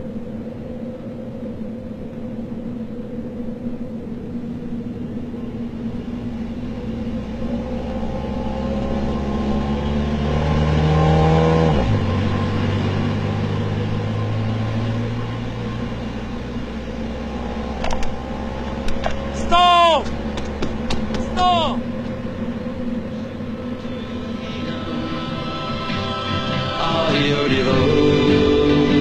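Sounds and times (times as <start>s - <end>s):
car passing by: 5.6s - 29.0s.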